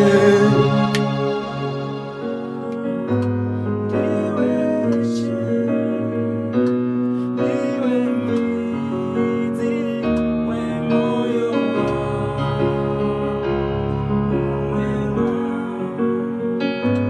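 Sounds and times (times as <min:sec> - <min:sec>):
held bass note: 0:00.0 - 0:02.8
electric piano chords: 0:00.0 - 0:17.0.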